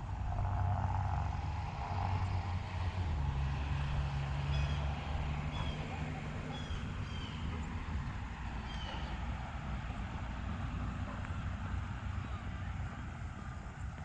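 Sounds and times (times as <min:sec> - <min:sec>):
traffic engine rumble: 0:00.0 - 0:14.0
bird chirping: 0:06.5 - 0:07.5, 0:08.6 - 0:09.2.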